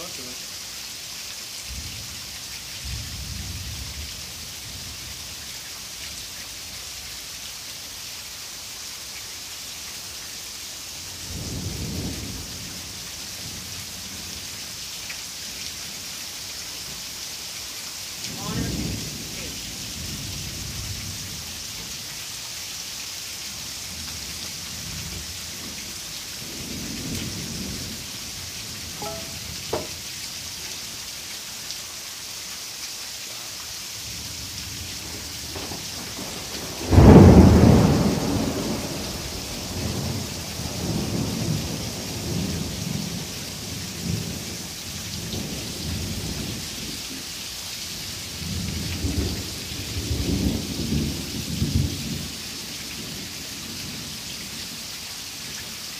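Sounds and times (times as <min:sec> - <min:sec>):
heavy rain: 0:00.0 - 0:55.9
low rumble of thunder: 0:02.8 - 0:05.2, 0:11.2 - 0:14.4, 0:18.2 - 0:21.5, 0:23.9 - 0:30.1, 0:34.0 - 0:47.0, 0:48.3 - 0:52.4
loud thunderclap: 0:35.0 - 0:43.2.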